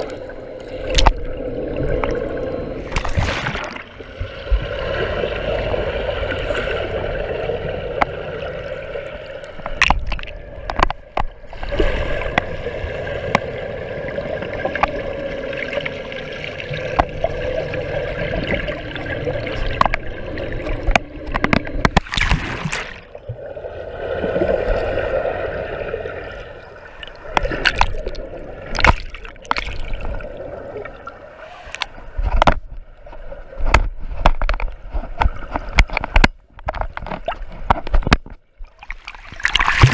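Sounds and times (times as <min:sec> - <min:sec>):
underwater gurgling and sloshing: 0:00.0 - 0:39.9
sharp clicks and knocks: 0:09.6 - 0:11.4, 0:20.7 - 0:22.1, 0:31.8 - 0:32.8, 0:33.6 - 0:38.4.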